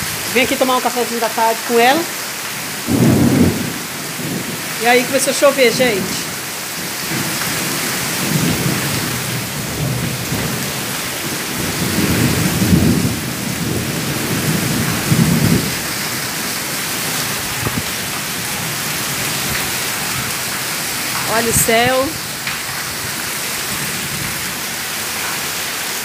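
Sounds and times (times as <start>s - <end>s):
heavy rain hissing: 0.0s - 26.0s
thunder rumbling: 2.8s - 6.5s, 7.1s - 23.0s.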